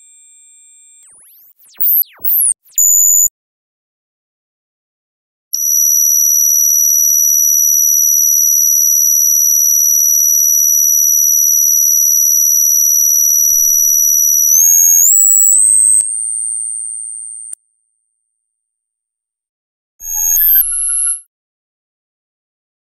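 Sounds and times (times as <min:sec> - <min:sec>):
synthesized scanning tone: 0:01.0 - 0:03.3, 0:20.0 - 0:21.2.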